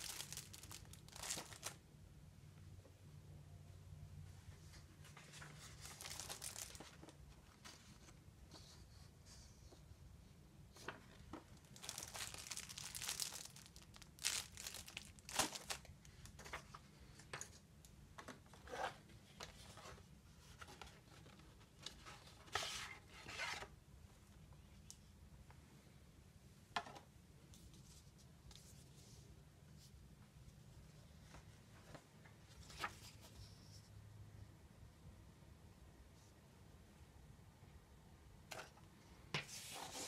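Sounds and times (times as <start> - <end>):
plastic and cardboard crinkling: 0.0 - 1.8, 5.1 - 8.2, 10.8 - 16.8.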